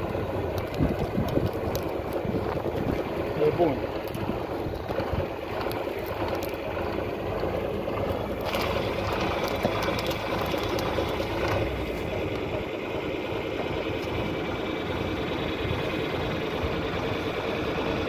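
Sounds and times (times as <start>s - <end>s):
plough frame rattles: 0.0s - 12.6s
tractor diesel engine running: 0.0s - 18.0s.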